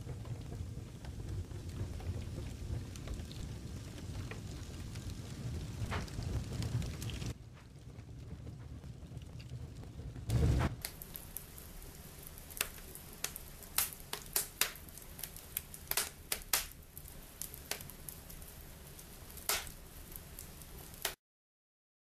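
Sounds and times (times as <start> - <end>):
embers crackling and popping: 0.0 - 21.2
faint steady hiss: 9.0 - 21.2.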